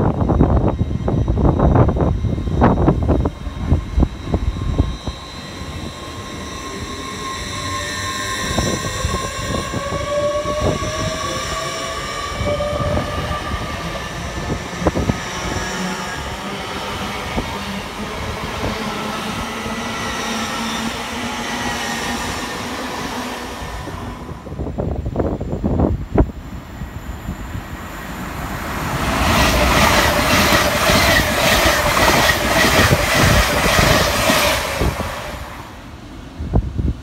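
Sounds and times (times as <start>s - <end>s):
electric train motor whine: 0.0s - 36.5s
train rumble: 0.0s - 37.0s.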